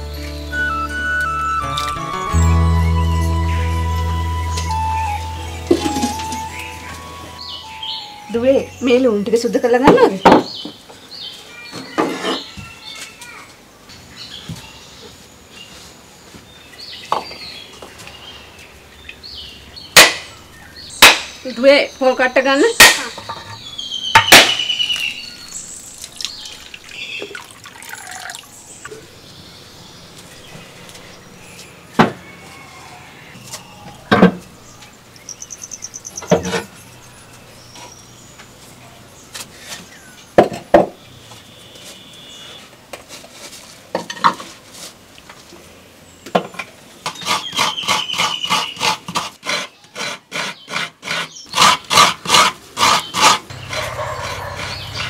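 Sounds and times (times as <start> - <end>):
coconut grating: 47.1 - 55.0.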